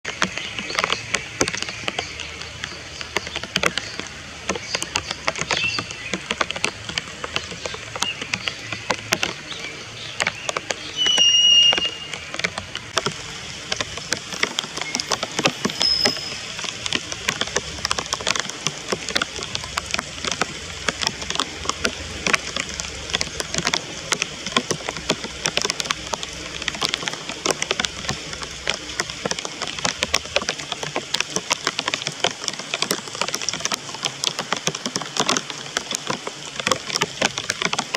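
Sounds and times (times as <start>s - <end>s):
rain pattering: 0.0s - 37.9s
high bird call: 10.9s - 12.2s.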